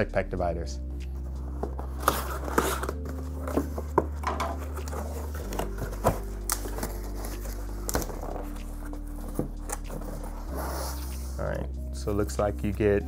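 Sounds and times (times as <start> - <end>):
cardboard box handled: 1.6 - 10.3.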